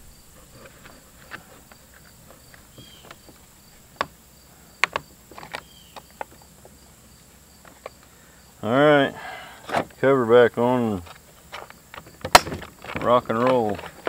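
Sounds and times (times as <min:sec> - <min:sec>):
insects chirping: 0:00.0 - 0:14.0
plastic clicks and knocks: 0:04.8 - 0:06.4.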